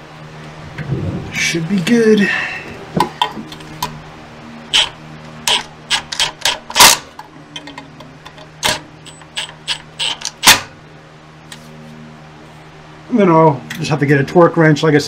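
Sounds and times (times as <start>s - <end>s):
hand ratchet clicking: 4.7s - 7.0s, 7.6s - 10.6s
sharp metal clicks: 4.7s - 10.7s.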